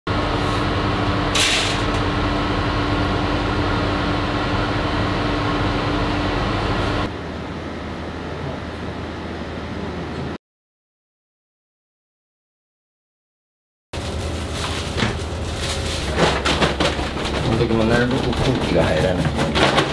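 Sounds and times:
machine hum: 0:00.1 - 0:10.4, 0:14.0 - 0:19.9.

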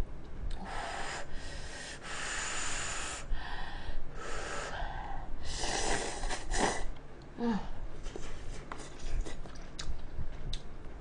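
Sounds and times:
person slurping noodles: 0:05.5 - 0:06.9.

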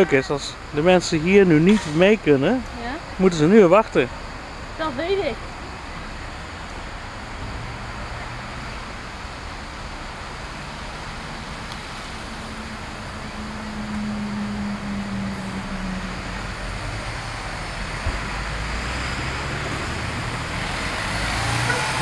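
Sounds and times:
bus engine rumbling: 0:00.0 - 0:22.0.

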